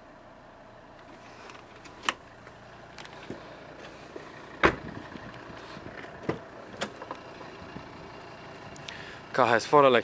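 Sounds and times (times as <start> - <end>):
car door thump: 4.6 - 5.0, 6.2 - 7.1.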